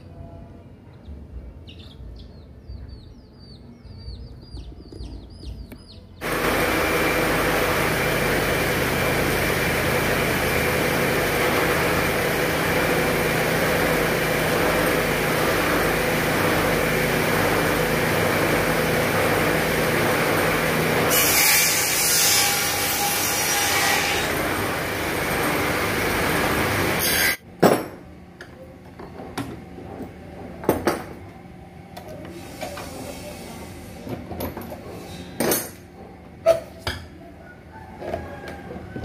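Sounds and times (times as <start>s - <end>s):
woodworking machine motor hum: 6.2s - 27.4s.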